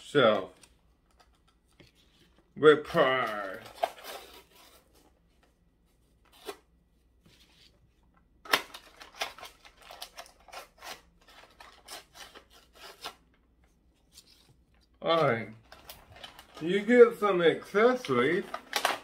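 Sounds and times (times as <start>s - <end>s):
plastic cracking: 8.4s - 12.4s, 15.6s - 16.9s, 17.9s - 19.0s
plastic packaging crackling: 15.6s - 17.1s, 17.9s - 19.0s.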